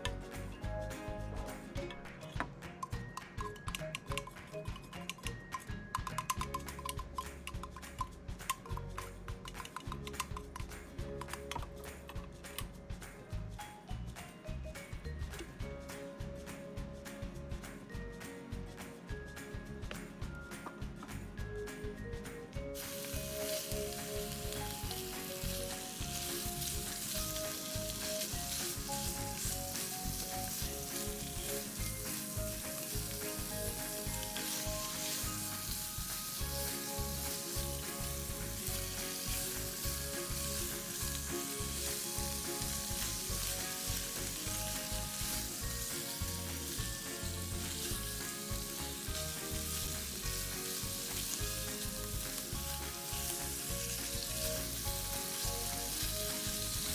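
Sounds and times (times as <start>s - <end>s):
spatula stirring meat: 2.8s - 12.2s, 22.8s - 56.9s
meat sizzling in frying pan: 22.7s - 56.9s.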